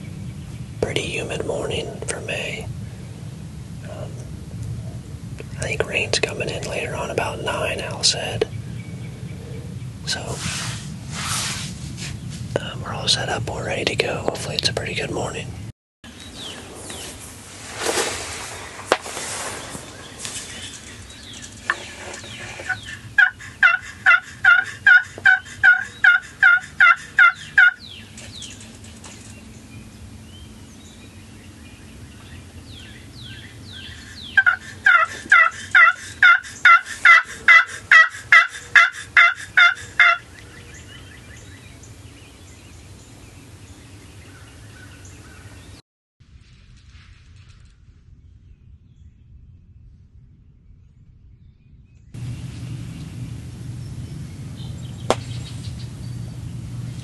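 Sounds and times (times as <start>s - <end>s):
rustling hiss: 10.1s - 15.0s, 16.1s - 27.2s
turkey yelps: 22.6s - 27.8s, 34.0s - 40.3s.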